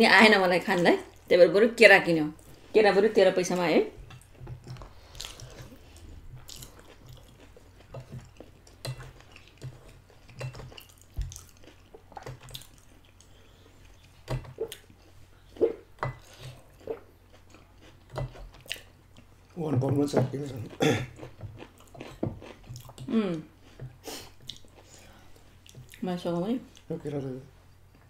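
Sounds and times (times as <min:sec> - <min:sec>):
chewing spaghetti: 0:04.1 - 0:19.6, 0:20.3 - 0:26.0.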